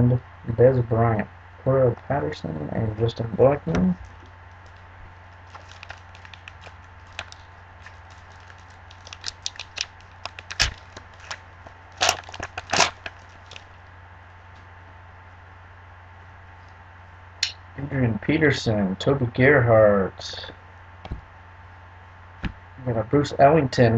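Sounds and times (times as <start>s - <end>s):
foil wrapper crinkling and tearing: 4.1s - 13.8s.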